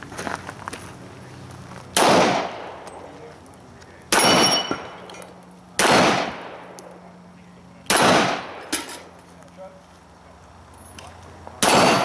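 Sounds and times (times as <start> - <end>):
pistol shots with echo: 2.0 - 2.8, 4.1 - 5.0, 5.8 - 6.8, 7.9 - 8.8, 11.6 - 12.0
high ringing: 4.2 - 4.9.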